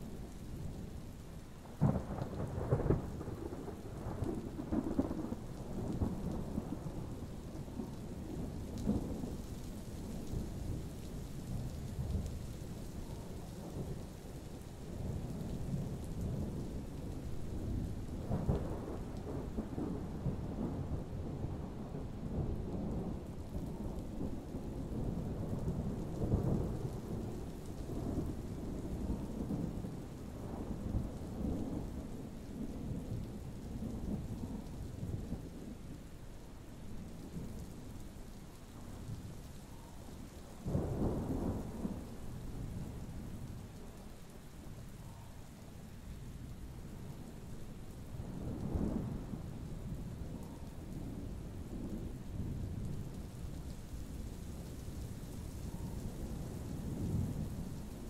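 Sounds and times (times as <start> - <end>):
steady rain: 0.0 - 58.0
thunder rumbling: 0.1 - 58.0.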